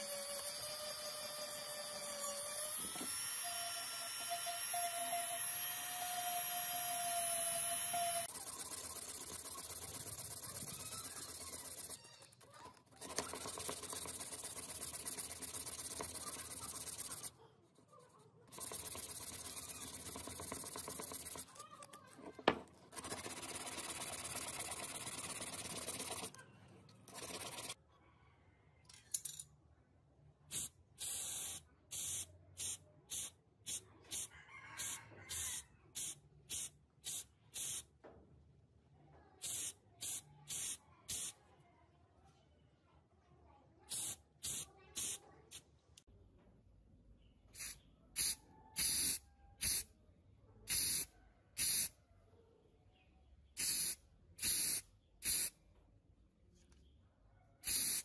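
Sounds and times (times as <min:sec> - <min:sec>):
spray paint hissing bursts: 0:08.2 - 0:12.0, 0:13.0 - 0:17.3, 0:18.5 - 0:21.4, 0:30.5 - 0:37.8, 0:39.4 - 0:41.4, 0:43.9 - 0:45.6, 0:47.6 - 0:49.8, 0:50.7 - 0:51.9, 0:53.6 - 0:55.5, 0:57.6 - 0:58.0
sanding rasp on metal: 0:13.0 - 0:17.3.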